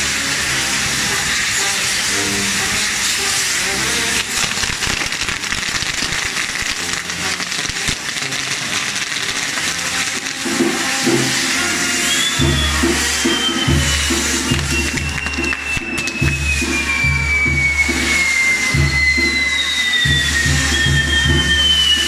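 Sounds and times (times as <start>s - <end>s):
fireworks hissing and crackling: 0.0s - 22.0s
band music: 6.1s - 22.0s.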